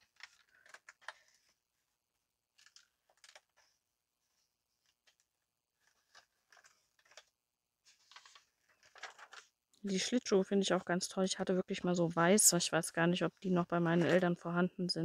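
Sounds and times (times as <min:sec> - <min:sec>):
paper rustling: 0:00.0 - 0:01.7, 0:02.5 - 0:10.2, 0:13.8 - 0:14.4.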